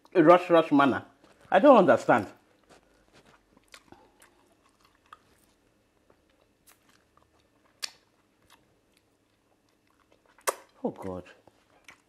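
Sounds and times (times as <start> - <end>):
man chewing: 2.4 - 10.8, 11.4 - 12.0
wet mouth clicks and smacks: 7.6 - 10.8.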